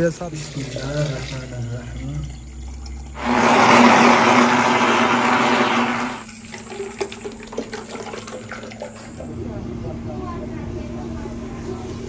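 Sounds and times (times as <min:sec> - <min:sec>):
thick drink pouring into jug: 0:00.0 - 0:09.3
blender motor running: 0:03.2 - 0:06.9.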